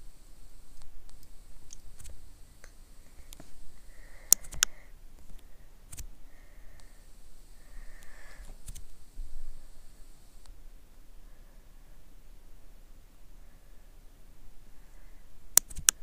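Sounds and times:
background hiss: 0.0 - 16.0
sharp clicks: 0.7 - 6.1, 7.7 - 9.0, 15.5 - 16.0.

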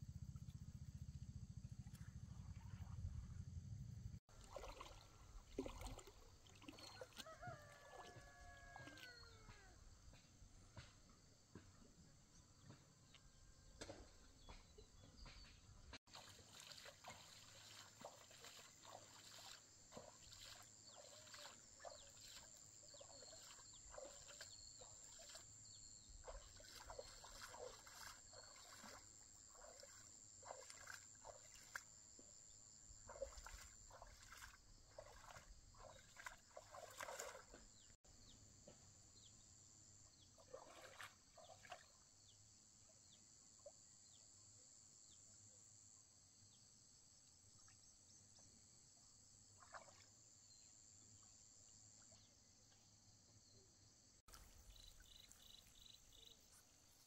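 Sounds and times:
small splashes and knocks: 4.3 - 9.8, 13.8 - 38.0, 40.3 - 42.0, 49.5 - 50.2, 54.3 - 56.8
high-pitched insect chorus: 16.2 - 31.8, 33.1 - 37.4, 54.3 - 57.0.

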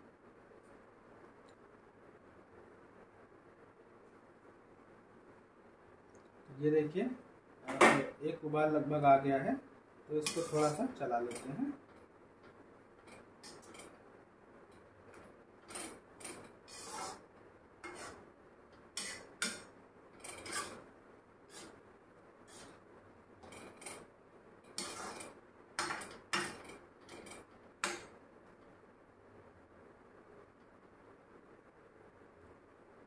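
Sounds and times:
metal ladle scraping metal pan: 10.2 - 11.4, 15.7 - 17.2, 17.8 - 18.2, 19.0 - 20.8, 21.5 - 21.8, 22.5 - 22.8, 24.7 - 28.0.

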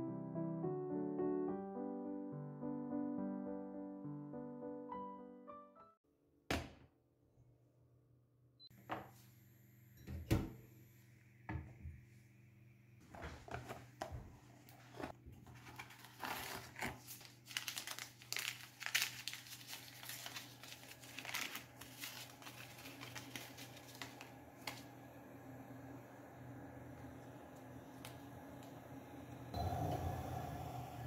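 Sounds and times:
cardboard box crinkling: 15.5 - 24.8
paper sachet tearing: 15.6 - 24.9.

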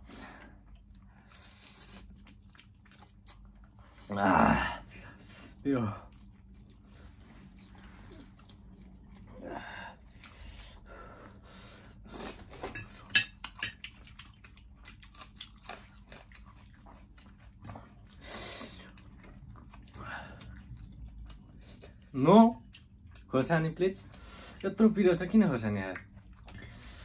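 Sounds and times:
chewing: 0.3 - 4.1, 5.2 - 9.4, 11.9 - 23.3, 25.9 - 27.0
fork clinking on ceramic plates: 12.6 - 13.9.

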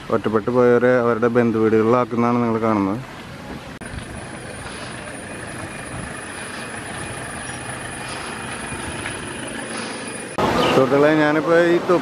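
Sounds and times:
flooded stream rushing: 3.0 - 12.0.

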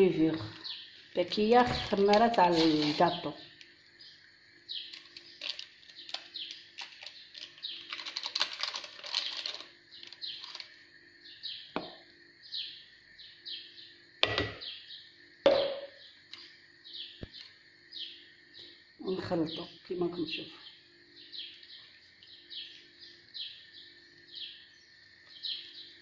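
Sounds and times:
small bird chirping: 0.3 - 8.2, 9.1 - 26.0
paper rustling: 4.9 - 10.7
sharp knocks: 15.5 - 15.9.

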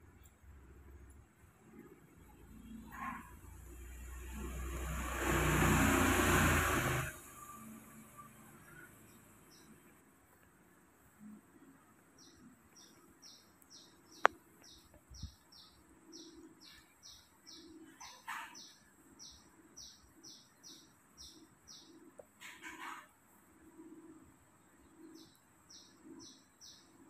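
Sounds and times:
bird chirping: 11.2 - 23.1, 23.7 - 27.0.

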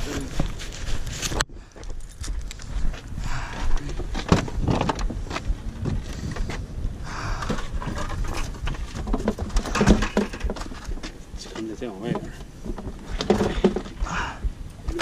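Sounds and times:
fishing gear knocking and clattering: 3.7 - 6.5, 7.4 - 14.1.

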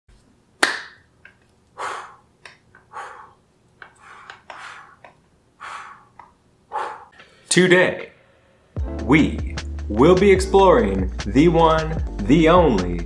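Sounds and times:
sharp clap-like snap: 0.6 - 1.1
short breathy hisses: 1.8 - 2.2, 4.0 - 5.0, 5.6 - 7.2.

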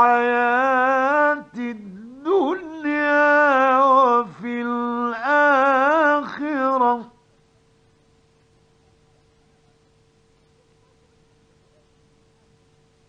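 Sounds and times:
man chanting melodically: 0.0 - 7.1.

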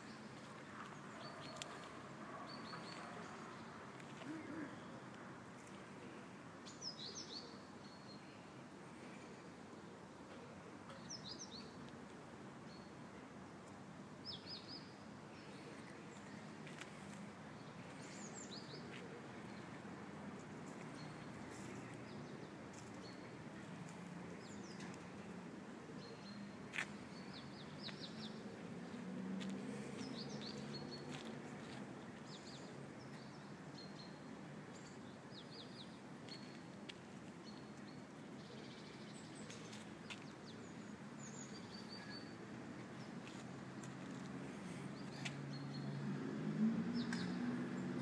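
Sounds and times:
small birds chirping: 26.0 - 46.1.

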